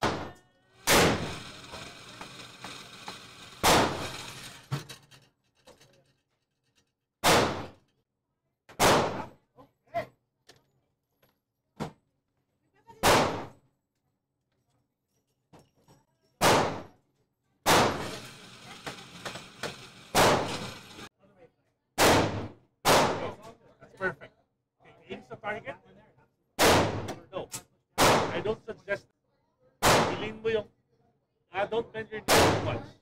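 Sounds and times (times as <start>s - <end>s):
gunshots ringing off walls: 0.0s - 1.4s, 3.6s - 4.1s, 7.2s - 7.8s, 8.8s - 9.3s, 13.0s - 13.6s, 16.4s - 17.0s, 17.6s - 18.1s, 20.1s - 20.6s, 22.0s - 23.4s, 26.6s - 27.1s, 28.0s - 28.4s, 29.8s - 30.4s, 32.3s - 32.9s.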